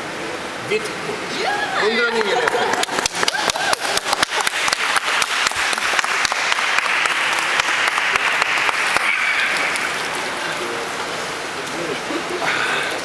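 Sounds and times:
spectators applauding: 2.0s - 10.7s.

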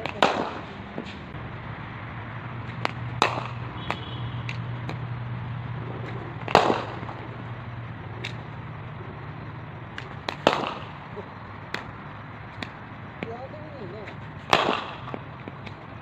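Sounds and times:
cricket bat striking ball: 0.0s - 1.2s, 2.6s - 5.2s, 6.0s - 7.5s, 8.2s - 8.6s, 9.8s - 16.0s
steady low hum: 0.0s - 16.0s.

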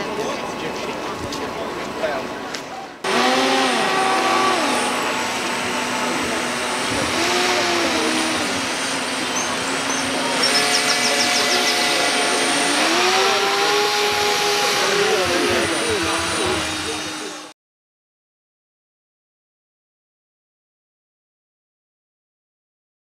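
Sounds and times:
model boat motor whining: 3.0s - 17.5s.

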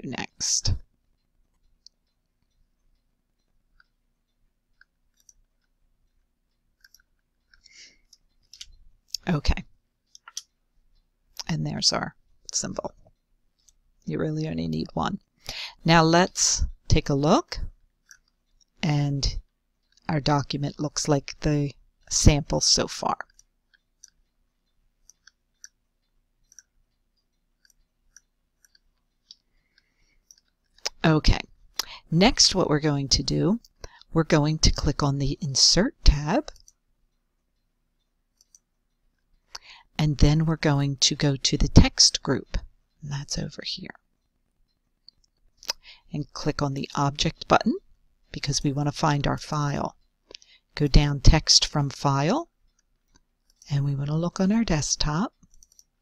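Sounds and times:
computer mouse clicks: 4.7s - 8.8s, 25.0s - 31.0s, 36.5s - 36.8s, 38.3s - 38.7s, 55.4s - 56.0s.

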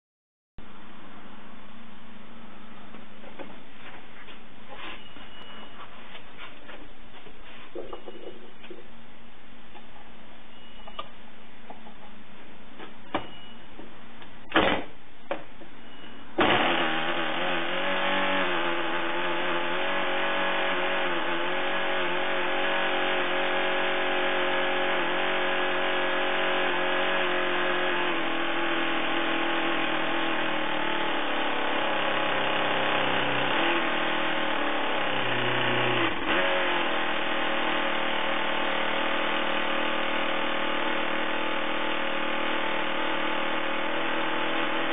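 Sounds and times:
model engine running: 16.4s - 44.9s.

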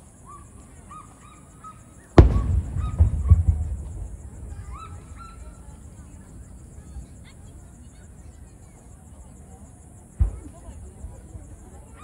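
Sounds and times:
rumbling crackle and echo: 2.2s - 5.8s
firework boom: 2.2s - 6.0s.

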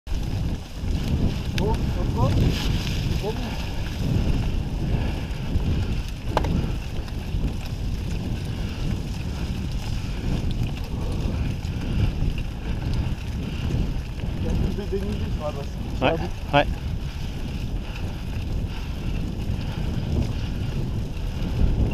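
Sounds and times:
bike rolling on dirt trail: 0.1s - 21.9s
wind buffeting microphone: 0.1s - 21.9s.

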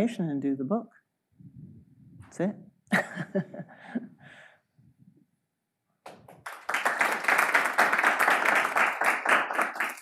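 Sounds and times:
audience applauding: 6.1s - 10.0s.

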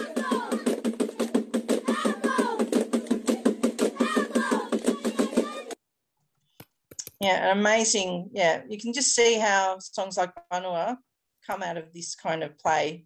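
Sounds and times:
children striking sticks rhythmically: 0.0s - 5.8s
children's voices calling: 0.0s - 5.8s.

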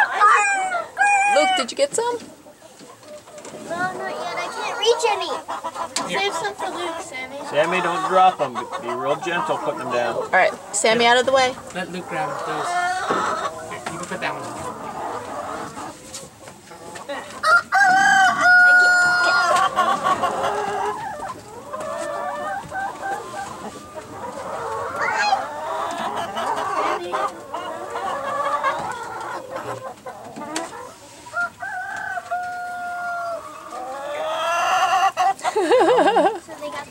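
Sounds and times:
chickens clucking: 0.0s - 36.9s
rooster crowing: 17.4s - 19.6s.

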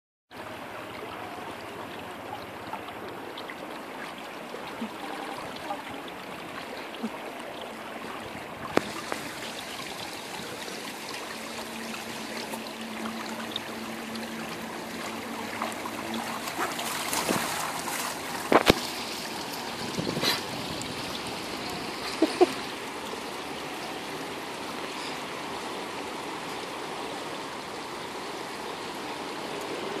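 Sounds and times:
dog splashing through water: 15.0s - 20.9s.

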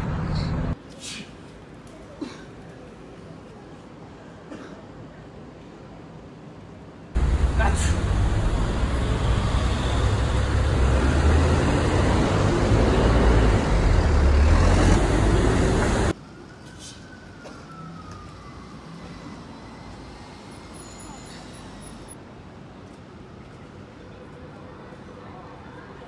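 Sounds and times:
loud city traffic rumble: 0.0s - 0.8s, 7.2s - 22.2s
quieter street traffic: 0.0s - 26.0s
faint siren: 16.1s - 21.4s.

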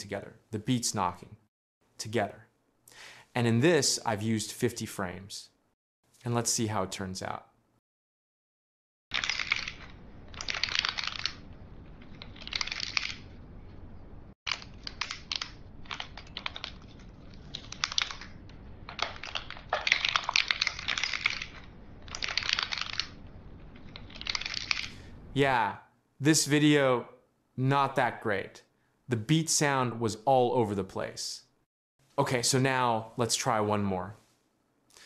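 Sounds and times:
wooden beads clicking: 9.1s - 13.3s, 14.5s - 25.0s
steady low hiss: 9.9s - 35.0s.

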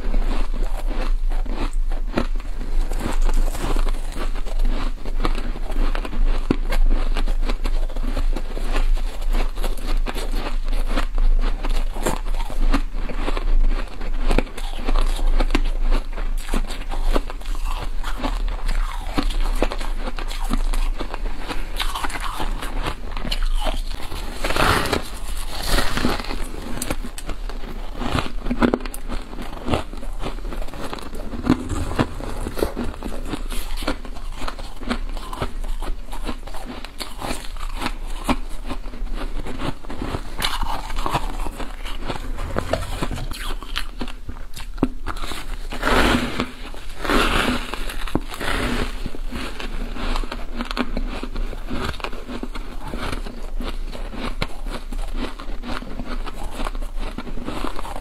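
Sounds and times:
crunching frost: 16.4s - 51.3s.

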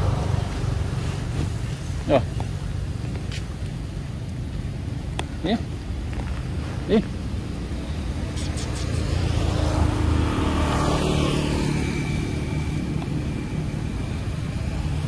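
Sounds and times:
vehicle engine passing: 6.3s - 15.0s.

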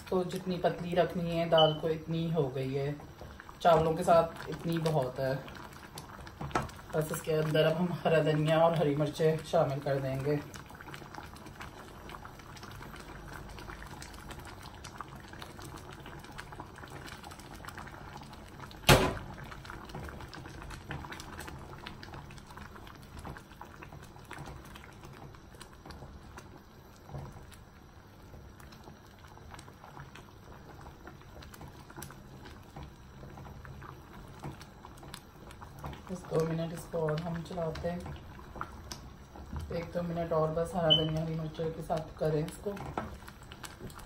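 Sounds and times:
food bubbling in a saucepan: 0.0s - 44.0s
sharp knock: 18.9s - 19.2s.

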